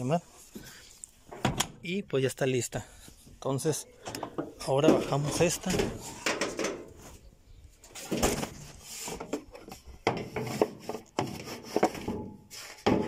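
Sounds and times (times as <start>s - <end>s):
plastic and metal parts clattering: 4.0s - 7.1s, 7.8s - 13.0s.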